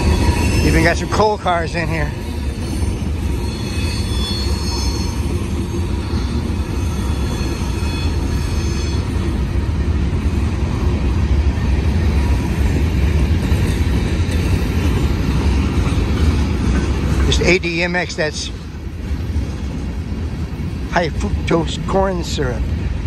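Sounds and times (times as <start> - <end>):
high-pitched wheel squeal: 0.0 - 9.1
steel wheels rumbling on rail: 0.0 - 23.0.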